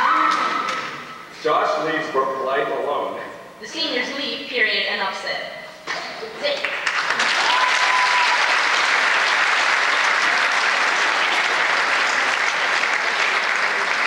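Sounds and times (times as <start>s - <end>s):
crowd applauding: 6.6s - 14.0s.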